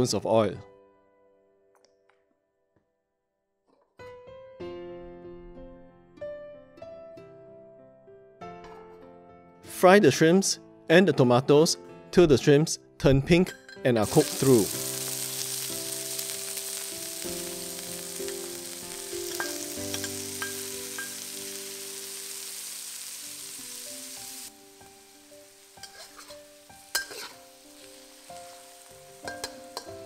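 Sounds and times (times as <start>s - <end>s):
food sizzling in hot oil: 14.0s - 30.0s
metal spatula clinking on wok: 19.2s - 21.3s, 25.8s - 27.4s, 29.2s - 30.0s.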